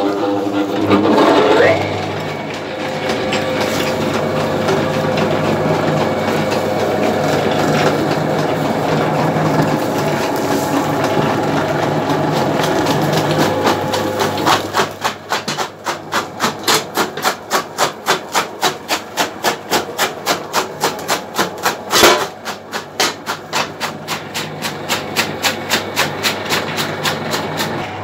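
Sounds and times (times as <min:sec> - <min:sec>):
motor hum: 0:00.0 - 0:16.4
chaff cutter chopping stalks: 0:00.8 - 0:27.8.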